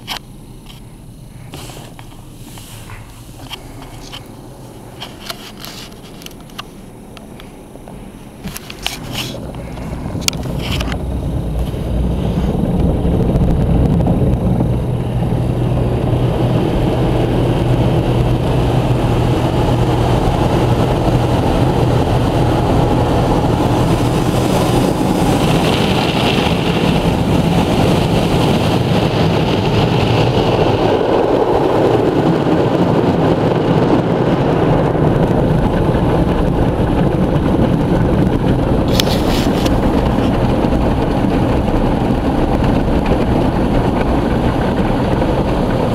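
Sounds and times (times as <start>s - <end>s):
low hum: 0.0s - 45.9s
water spraying on car: 0.0s - 45.9s
cloth brushes rubbing: 1.4s - 6.2s, 39.0s - 39.8s.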